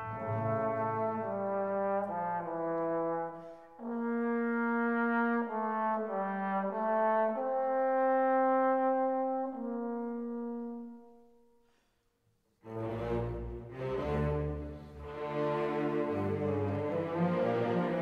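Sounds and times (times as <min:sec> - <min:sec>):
slow brass music: 0:00.0 - 0:11.5.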